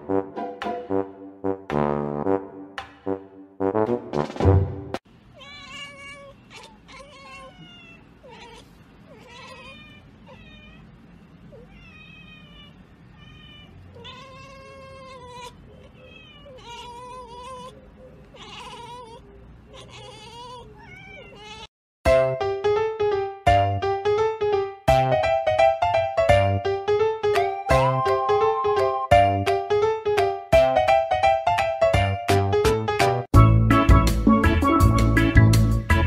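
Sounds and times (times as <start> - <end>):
brass music: 0.0 - 5.0, 24.9 - 25.7, 27.5 - 29.4, 33.0 - 36.0
cat meowing: 5.3 - 21.7.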